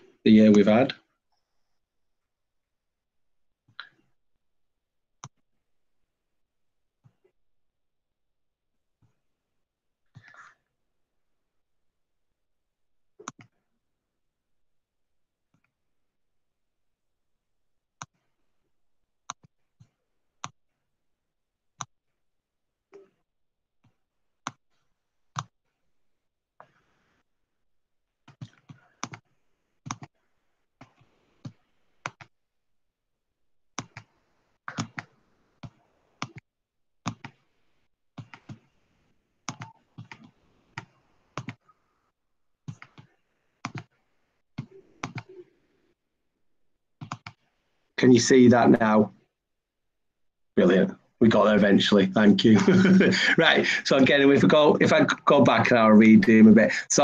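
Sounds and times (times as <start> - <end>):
mouse and keyboard clicking: 42.7 - 43.9, 44.6 - 45.4.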